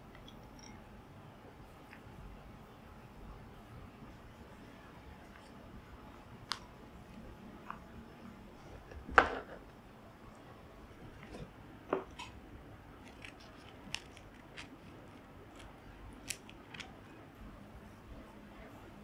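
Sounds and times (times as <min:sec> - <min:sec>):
scissors snipping seaweed: 0:13.0 - 0:14.8, 0:15.5 - 0:16.9.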